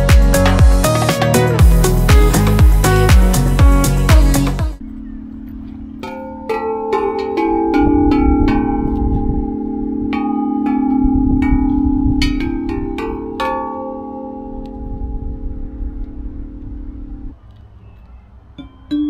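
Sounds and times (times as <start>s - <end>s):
tubular chimes ringing: 4.8s - 17.4s.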